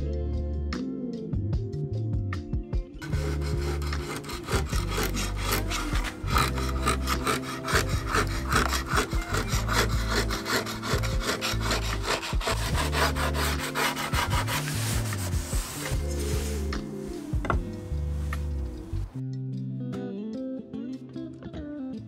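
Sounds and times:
scraper rasping across wood: 3.0s - 16.9s.

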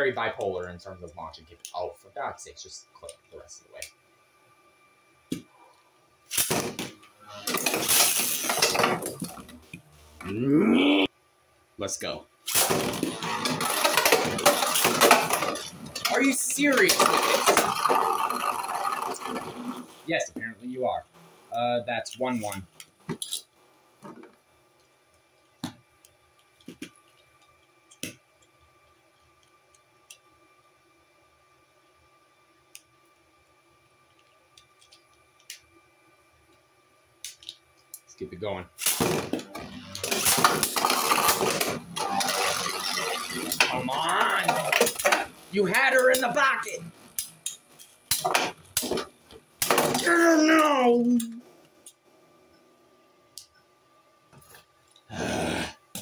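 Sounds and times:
spinning tops clattering in plastic: 7.5s - 9.4s, 12.5s - 19.8s, 40.0s - 45.3s.

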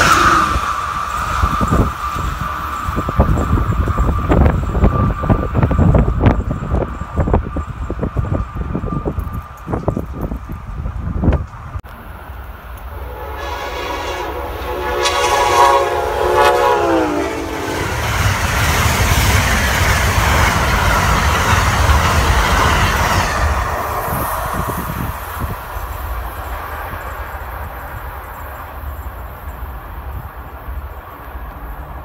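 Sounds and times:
train cars rushing on rails: 0.0s - 32.0s
train horn: 12.9s - 18.4s.

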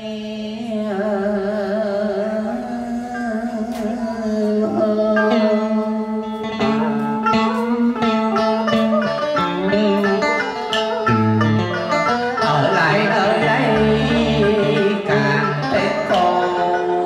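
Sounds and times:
plucked strings with bent notes: 3.4s - 17.0s.

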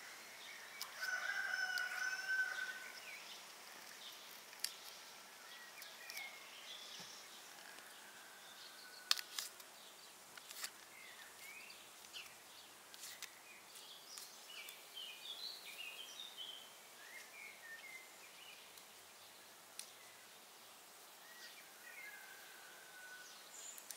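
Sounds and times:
small bird chirping: 0.0s - 8.0s
steady low hiss: 0.0s - 23.9s.

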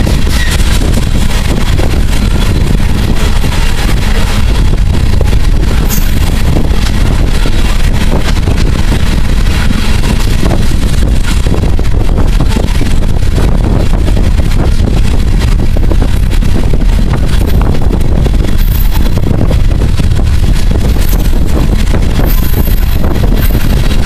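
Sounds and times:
freight train wheels on rails: 0.0s - 24.0s
wind on microphone: 0.0s - 24.0s.

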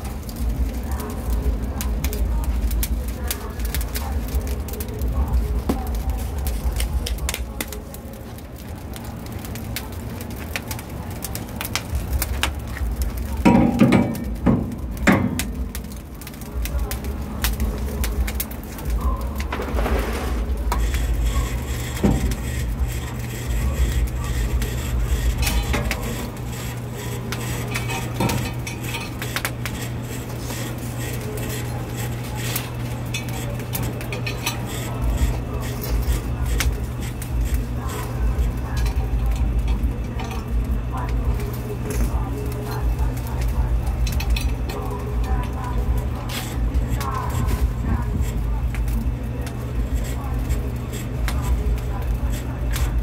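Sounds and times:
charcoal crackling: 0.0s - 53.0s
low fire rumble: 0.0s - 53.0s
wire basket rattling on metal grill: 11.7s - 15.9s, 18.2s - 53.0s.

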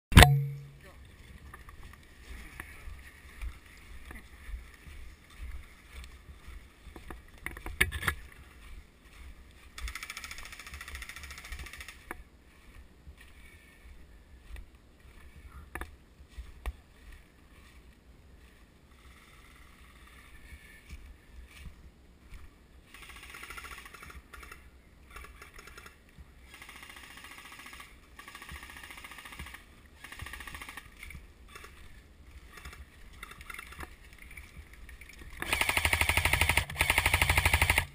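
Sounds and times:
sharp clicks: 32.5s - 37.9s.

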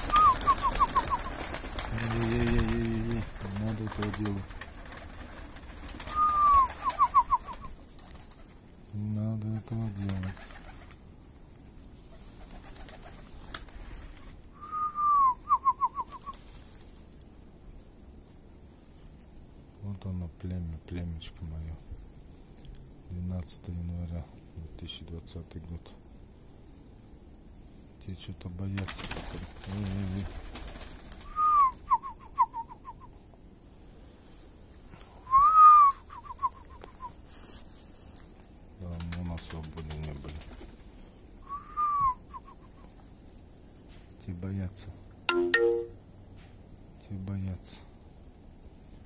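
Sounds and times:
man whistling: 0.1s - 1.1s, 6.1s - 7.5s, 14.6s - 16.3s, 31.3s - 33.1s, 35.2s - 37.1s, 41.4s - 42.6s.

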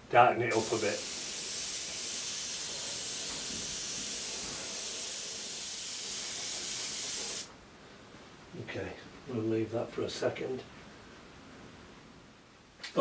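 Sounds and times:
airbrush spraying paint: 0.5s - 7.5s.

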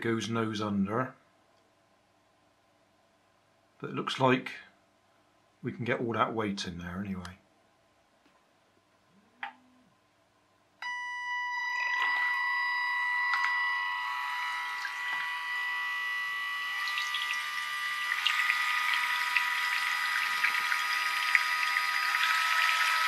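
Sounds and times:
electric motor whine: 11.7s - 23.0s.

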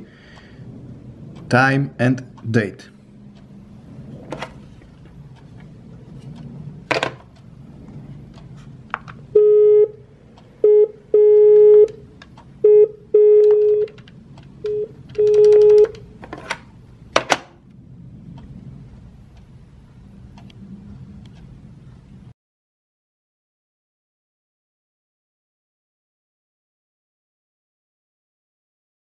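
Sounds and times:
phone dial tone beeps: 9.4s - 10.0s, 10.6s - 12.0s, 12.6s - 14.0s, 14.6s - 16.0s.

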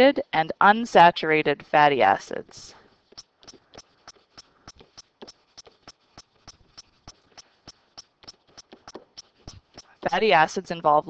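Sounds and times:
stylus clicking on tablet: 3.1s - 10.6s.

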